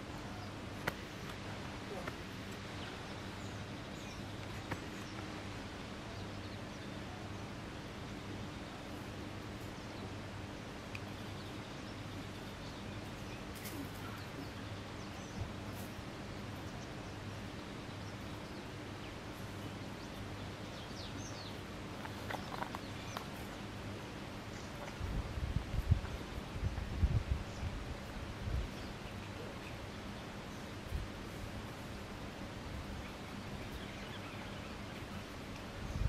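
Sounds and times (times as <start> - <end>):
low even hum: 0.0 - 36.0.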